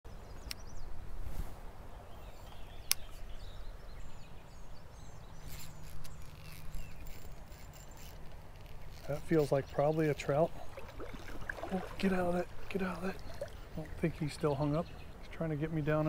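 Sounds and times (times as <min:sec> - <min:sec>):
low steady hum: 0:01.8 - 0:16.0
faint bird chirps: 0:01.9 - 0:10.7
sharp clicks: 0:02.8 - 0:03.2.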